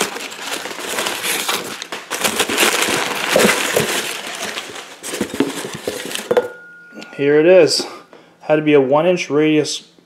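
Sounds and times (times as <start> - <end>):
packing paper rustling and crinkling: 0.0 - 6.4.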